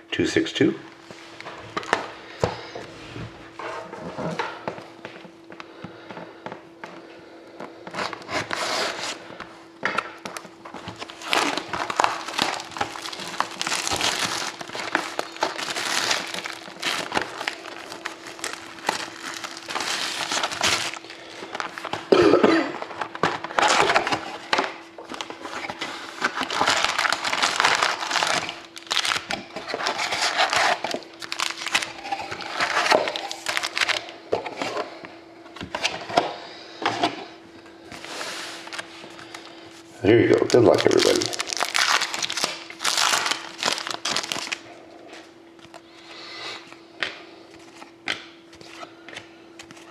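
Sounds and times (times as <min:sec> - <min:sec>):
plastic shrink wrap crinkling: 0:10.0 - 0:34.1, 0:40.3 - 0:44.7.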